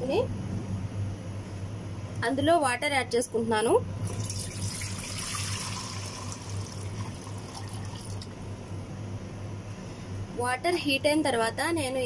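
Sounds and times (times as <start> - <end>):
steady low hum: 0.0 - 12.0
water pouring into metal pot: 4.1 - 8.3.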